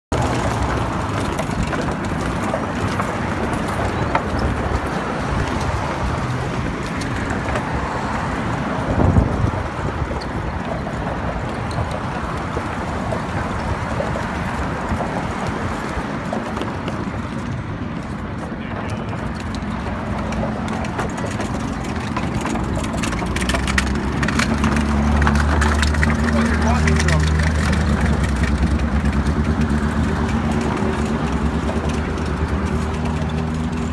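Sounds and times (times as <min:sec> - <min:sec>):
road traffic: 0:00.1 - 0:33.9
scooter wheels on wooden deck: 0:00.1 - 0:33.9.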